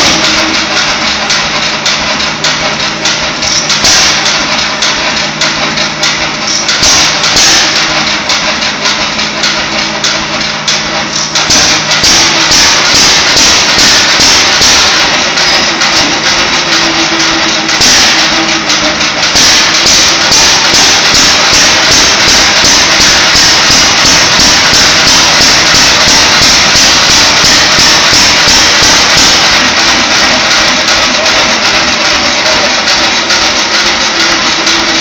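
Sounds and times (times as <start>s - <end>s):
stationary gas engine knocking: 0.0s - 35.0s.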